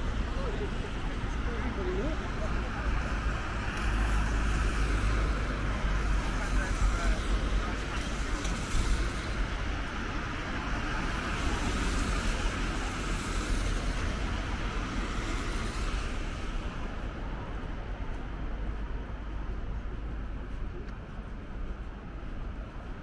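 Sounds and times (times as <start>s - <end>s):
low traffic rumble: 0.0s - 23.0s
tyres hissing on wet road: 1.9s - 16.9s.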